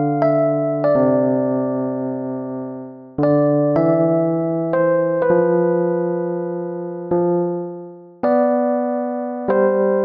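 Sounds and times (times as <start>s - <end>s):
electric piano chords: 0.0s - 10.0s.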